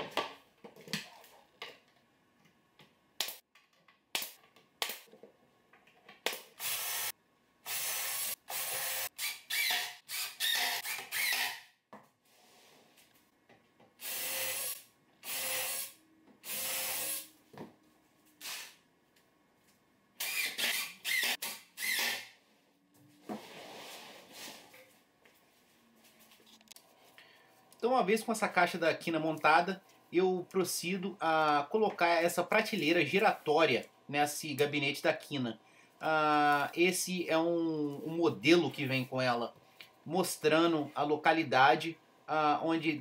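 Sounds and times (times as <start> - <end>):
cordless drill driving screws: 6.6 - 7.1, 7.7 - 11.6, 14.0 - 17.3, 20.2 - 22.3.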